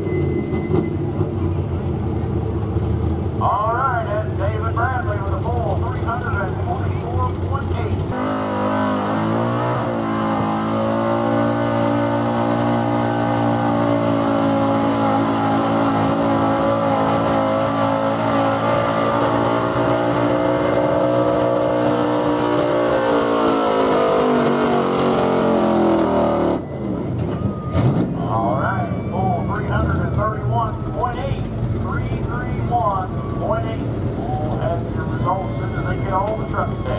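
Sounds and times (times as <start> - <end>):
pickup truck engine at high revs: 5.8 - 28.6.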